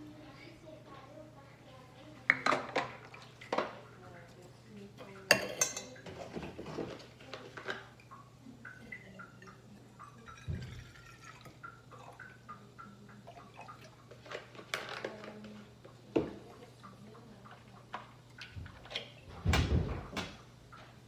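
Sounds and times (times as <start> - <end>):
milk pouring into metal pitcher: 5.3 - 18.9.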